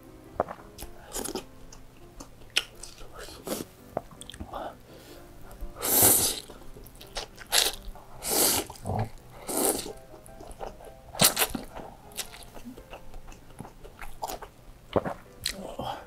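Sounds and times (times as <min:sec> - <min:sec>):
person chewing: 0:00.4 - 0:16.0
person slurping noodles: 0:05.8 - 0:06.5, 0:07.5 - 0:10.0.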